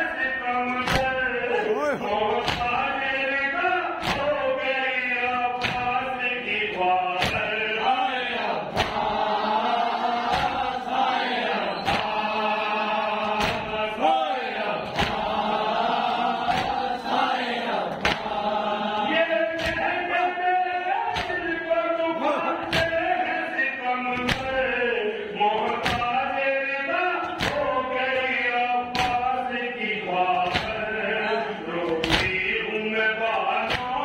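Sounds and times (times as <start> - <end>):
men chanting in unison: 0.0 - 34.0
chest-beating slaps: 2.3 - 2.9, 4.0 - 4.4, 5.5 - 6.1, 6.7 - 7.6, 8.7 - 9.2, 10.2 - 12.4, 13.1 - 13.9, 14.8 - 15.5, 16.4 - 16.9, 17.9 - 19.9, 21.1 - 21.6, 24.2 - 24.6, 25.6 - 26.2, 27.2 - 27.7, 28.9 - 29.3, 30.4 - 31.0, 31.9 - 32.5, 33.6 - 34.0.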